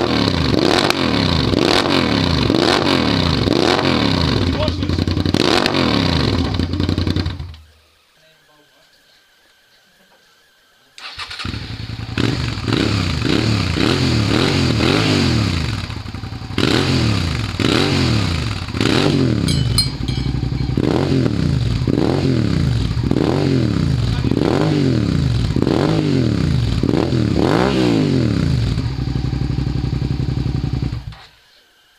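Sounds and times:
motorcycle engine revving: 0:00.0 - 0:07.7, 0:11.0 - 0:31.3
motorcycle engine idling: 0:04.2 - 0:05.3, 0:06.2 - 0:07.5, 0:15.8 - 0:17.7, 0:18.5 - 0:24.4, 0:28.4 - 0:31.1.

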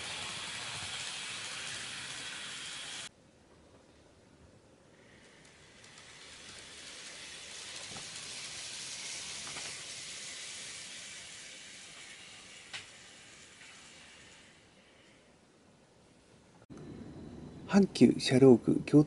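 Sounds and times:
model train motor whirring: 0:00.0 - 0:03.1, 0:05.1 - 0:15.0.

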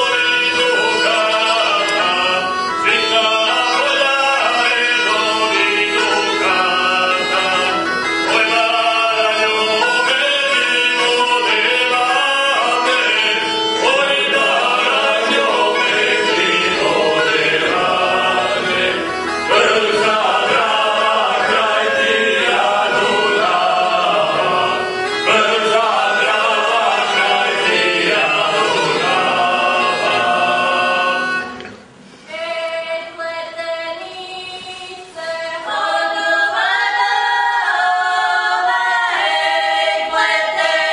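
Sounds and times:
men singing folk song: 0:00.0 - 0:31.6
bagpipe drone: 0:00.0 - 0:32.0.

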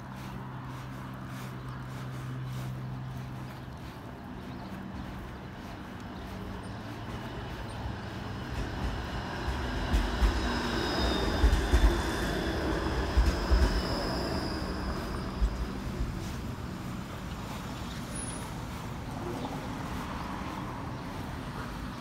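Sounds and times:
streetcar wheels rumbling on rails: 0:00.0 - 0:22.0.

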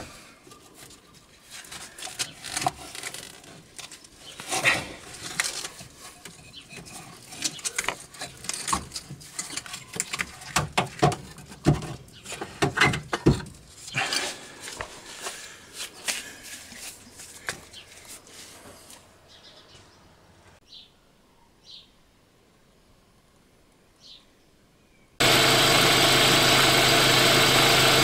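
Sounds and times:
metal knocks clunks and scrapes: 0:04.3 - 0:14.9.

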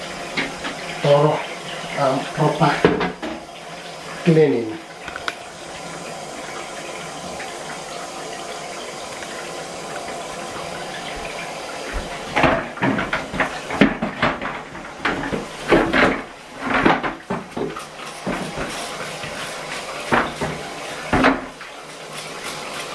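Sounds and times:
bath tap running: 0:00.0 - 0:22.9
plastic drum knocking in bath: 0:02.6 - 0:03.5, 0:11.1 - 0:21.6.

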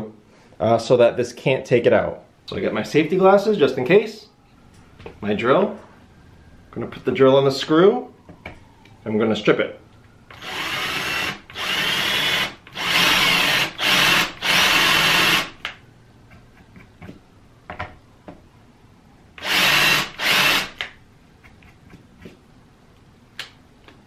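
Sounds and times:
cordless drill grinding screw: 0:10.3 - 0:15.6, 0:19.4 - 0:20.8.

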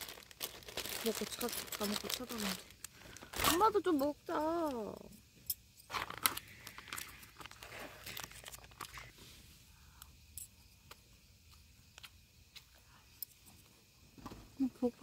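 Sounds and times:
plastic and paper crinkling: 0:00.0 - 0:03.9, 0:05.9 - 0:09.1.

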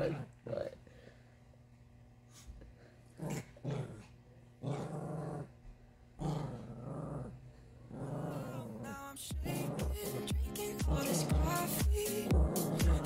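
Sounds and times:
small dog growling: 0:03.1 - 0:05.6, 0:06.2 - 0:10.2, 0:10.9 - 0:13.0.

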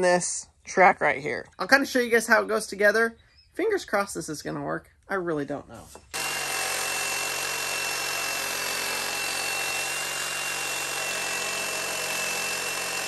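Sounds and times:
reciprocating saw cutting metal: 0:06.1 - 0:13.0.

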